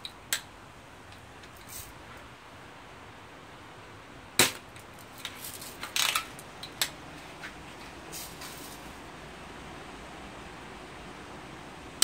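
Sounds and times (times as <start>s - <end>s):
bb gun firing crack: 4.4s - 4.7s.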